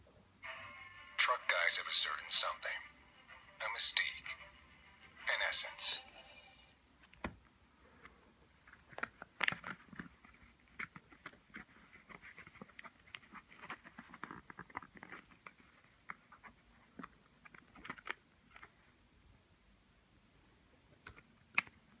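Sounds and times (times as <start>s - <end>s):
faint clicks and crackles: 8.0s - 18.9s.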